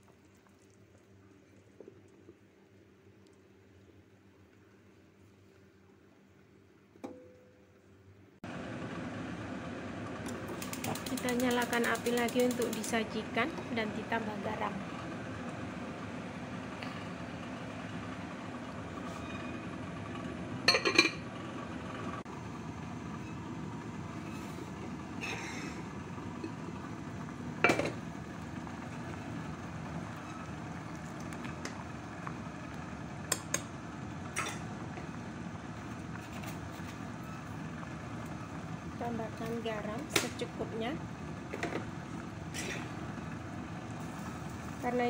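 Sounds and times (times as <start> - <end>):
soup boiling in a pot: 0.0 - 6.5, 22.3 - 39.0, 41.0 - 44.9
clinks against ceramic pot: 20.7 - 21.2.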